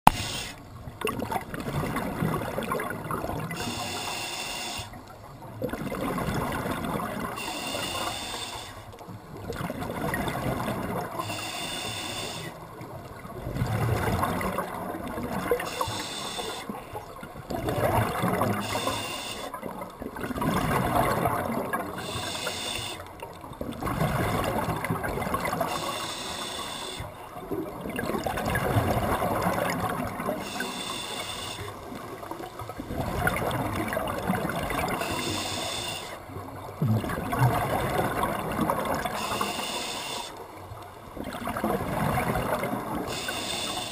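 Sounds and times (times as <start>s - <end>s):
regulator inhale hiss: 0.1s - 0.6s, 3.6s - 5.0s, 7.4s - 8.9s, 11.2s - 12.6s, 15.6s - 16.8s, 18.6s - 19.6s, 22.0s - 23.1s, 25.7s - 27.2s, 30.4s - 32.0s, 35.0s - 36.3s, 39.2s - 40.4s, 43.0s - 43.9s
exhaled bubbles gushing: 1.0s - 3.8s, 5.5s - 7.4s, 9.2s - 11.2s, 12.7s - 16.0s, 17.0s - 18.8s, 19.5s - 22.2s, 23.2s - 25.9s, 27.3s - 30.7s, 31.9s - 35.5s, 36.2s - 39.5s, 41.1s - 43.2s.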